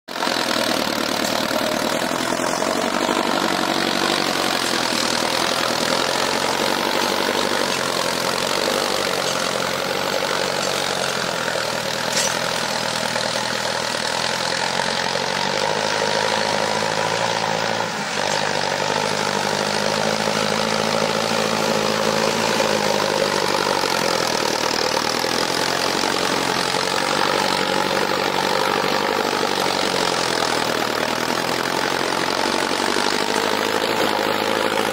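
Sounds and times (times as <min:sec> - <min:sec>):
tractor diesel engine under load: 0:00.0 - 0:34.9.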